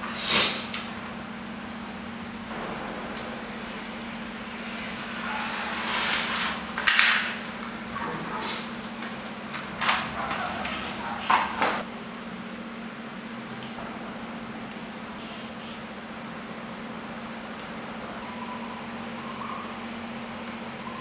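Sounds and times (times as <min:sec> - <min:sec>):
steady low hum: 0:01.0 - 0:15.2.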